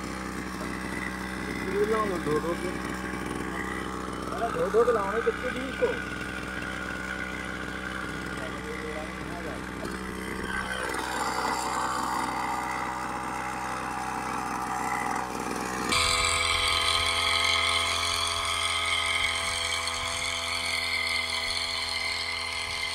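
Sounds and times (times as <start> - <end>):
small engine running: 0.0 - 22.9.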